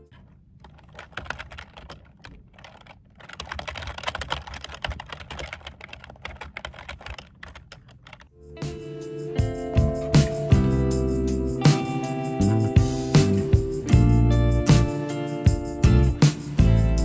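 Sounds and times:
computer keyboard typing: 0.6s - 8.3s.

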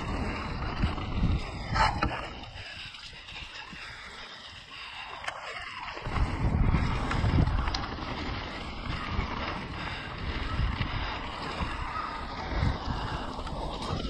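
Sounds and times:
bike tyres and frame rattling: 0.0s - 14.0s
wind buffeting microphone: 0.0s - 14.0s.

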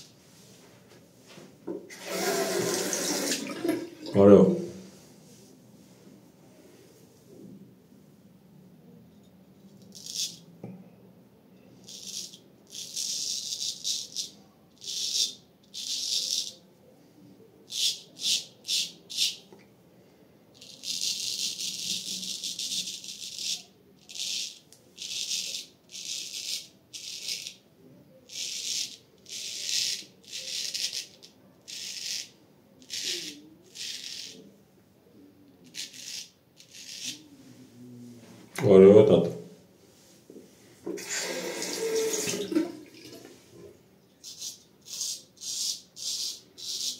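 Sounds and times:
razor scraping stubble: 35.7s - 37.2s.

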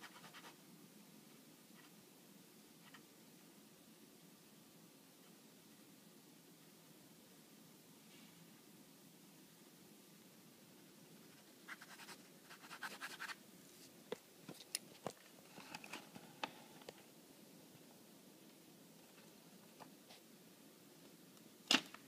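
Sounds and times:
pen scratching on paper: 0.0s - 0.6s, 11.3s - 13.4s.

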